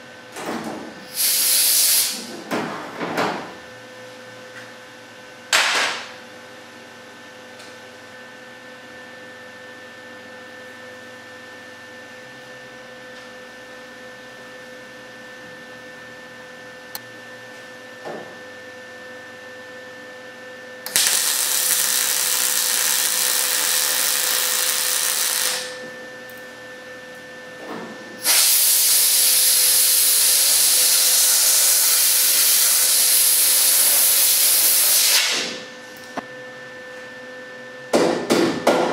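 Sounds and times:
welding arc sizzle: 1.1 - 2.3, 20.8 - 26.4, 28.2 - 35.6.

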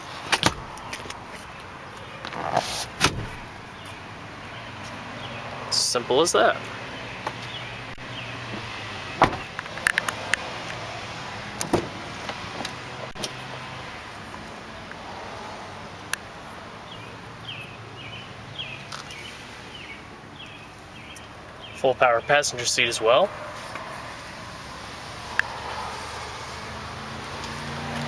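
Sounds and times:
car door shutting: 2.3 - 3.6, 8.5 - 9.6, 11.6 - 12.0
latch clicks and knocks: 9.2 - 10.1.

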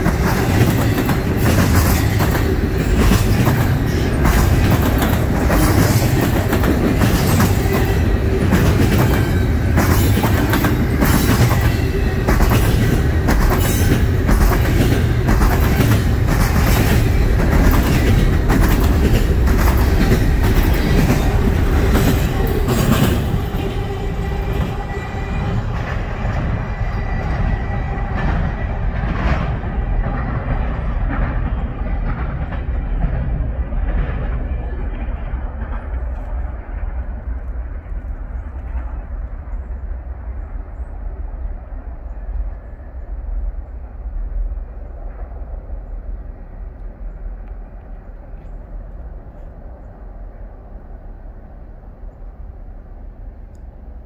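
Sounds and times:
wheels clacking over rail joints: 0.0 - 39.2
train rumbling past: 0.0 - 54.0.

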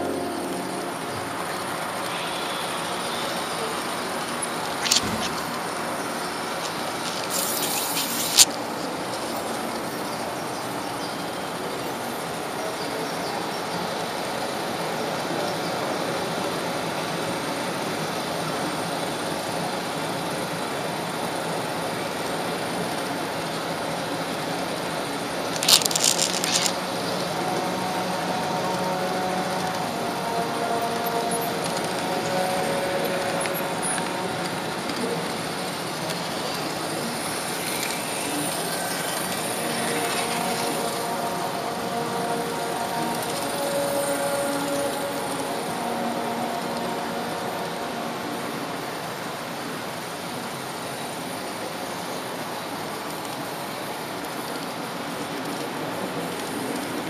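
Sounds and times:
model train wheels and motor: 2.0 - 45.2.

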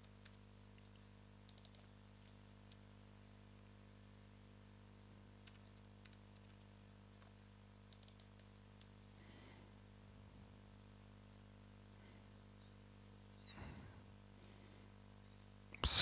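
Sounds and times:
keyboard typing: 0.0 - 3.0, 5.4 - 6.8, 7.9 - 8.5
low hum: 11.9 - 15.7.

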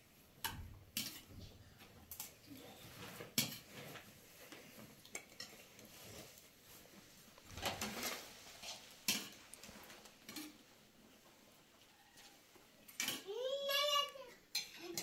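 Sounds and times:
spoons clinking against plates: 0.4 - 1.3, 5.0 - 6.0, 8.6 - 9.5, 10.2 - 10.6, 14.5 - 15.0.

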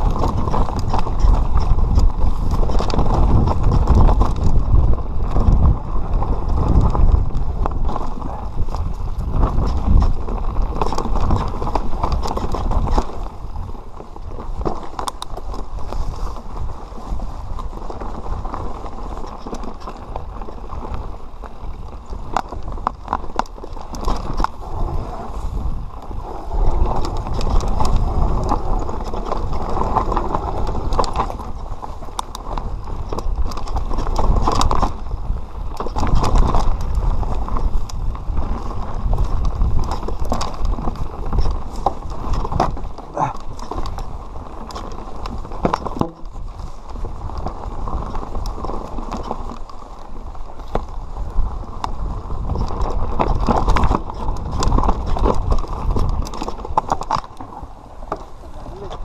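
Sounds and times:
bike knocking and rattling: 0.0 - 59.0
tyres rolling over stones: 0.0 - 59.0.

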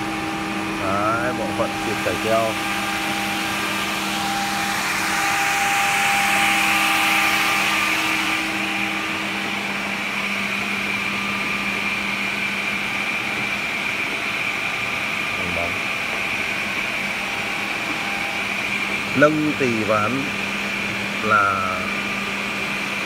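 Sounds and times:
edge banding machine whir: 0.0 - 23.0
machine hums: 0.0 - 23.0.

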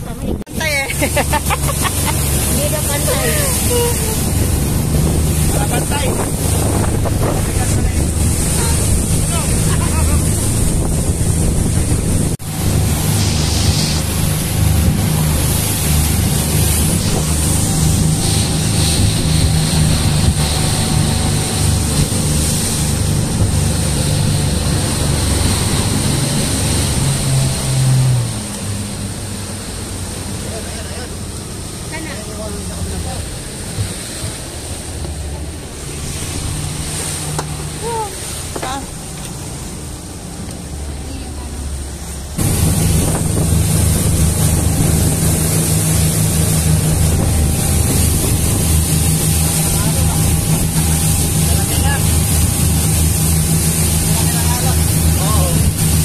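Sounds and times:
motorboat engine droning: 0.0 - 56.0
rush of the wake: 0.0 - 56.0
water splashing along hull: 0.0 - 56.0
wind on microphone: 1.6 - 29.3, 42.4 - 56.0.

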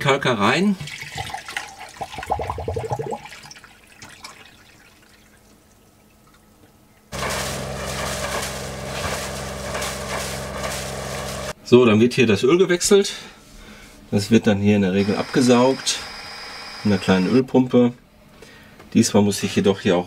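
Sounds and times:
liquid pouring from jug: 0.8 - 6.4
water splashing from outlet: 0.8 - 6.4, 7.1 - 11.6
diesel engine running: 7.2 - 11.5.

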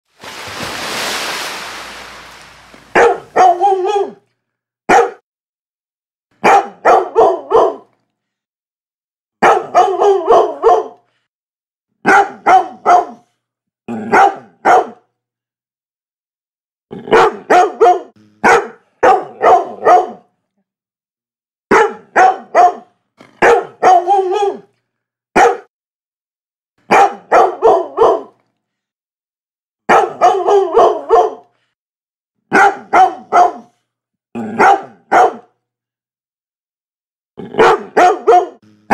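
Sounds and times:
dog barking: 2.9 - 4.2, 4.9 - 5.2, 6.4 - 7.9, 9.4 - 11.0, 12.0 - 13.3, 14.0 - 15.0, 17.1 - 20.3, 21.7 - 24.7, 25.4 - 25.7, 26.9 - 28.4, 29.9 - 31.5, 32.5 - 33.8, 34.4 - 35.6, 37.5 - 38.9.

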